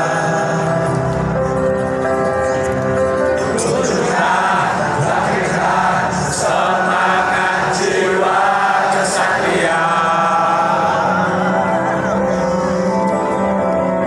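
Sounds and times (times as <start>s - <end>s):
stadium crowd singing: 0.0s - 1.3s, 3.3s - 12.9s.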